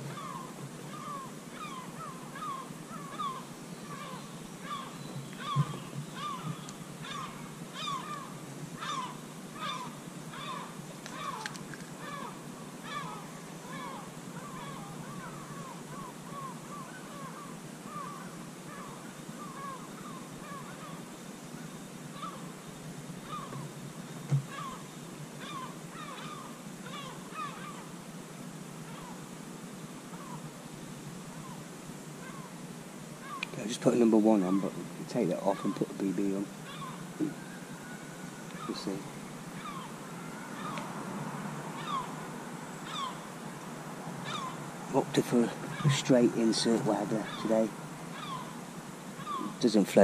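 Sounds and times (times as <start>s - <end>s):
bird calling: 0.0s - 28.1s, 28.8s - 29.3s, 30.0s - 30.6s, 31.2s - 32.6s, 33.2s - 50.0s
outdoor hiss: 0.0s - 50.0s.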